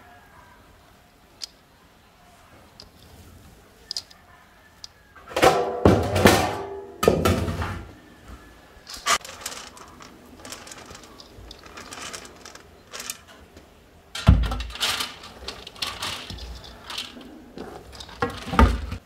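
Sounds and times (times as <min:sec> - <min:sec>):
metal tray clanking: 0:08.9 - 0:13.4, 0:14.1 - 0:19.0
grains pouring onto metal tray: 0:09.0 - 0:13.4, 0:14.6 - 0:18.6.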